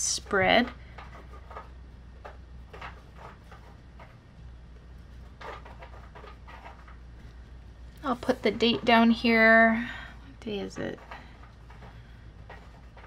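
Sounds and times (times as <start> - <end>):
faint steady hum: 0.0 - 13.0
pencil scratching on paper: 10.7 - 13.0.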